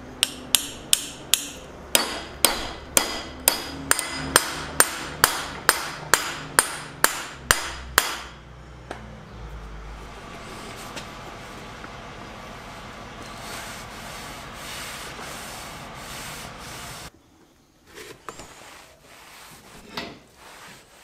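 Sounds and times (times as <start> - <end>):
rag wiping steel hammer head: 12.8 - 17.1, 18.6 - 21.0
rag scrubbing wooden handle: 13.2 - 17.1, 18.6 - 21.0.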